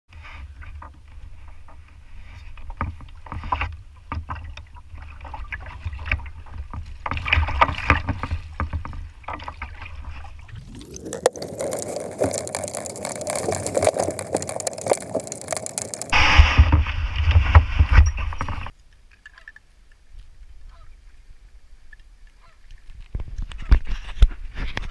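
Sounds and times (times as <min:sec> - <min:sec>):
kayak paddle splashing water: 0:00.7 - 0:18.7.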